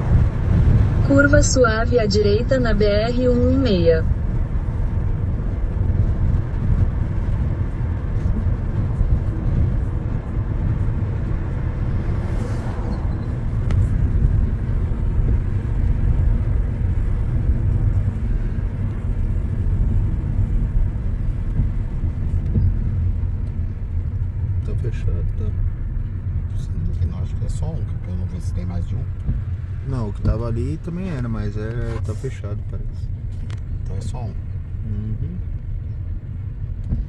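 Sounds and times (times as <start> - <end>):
car road and engine noise: 0.0 - 37.0
brief rush of noise: 12.0 - 13.4.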